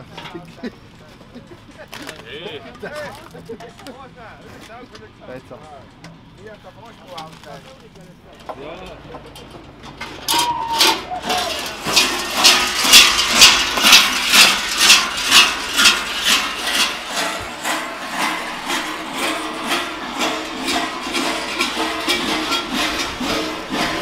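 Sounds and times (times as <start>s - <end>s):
large bells clanging rhythmically: 10.8s - 24.0s
low rumble: 11.7s - 24.0s.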